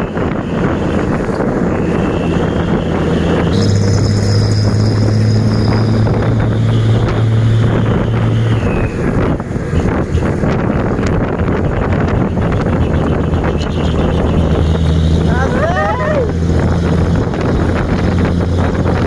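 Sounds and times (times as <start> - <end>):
motorcycle engine hum: 0.0 - 19.0
road noise: 0.0 - 19.0
wind buffeting microphone: 0.0 - 19.0.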